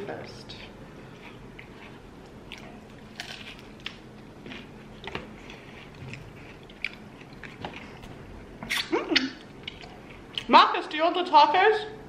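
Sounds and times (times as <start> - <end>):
chewing: 0.5 - 10.5.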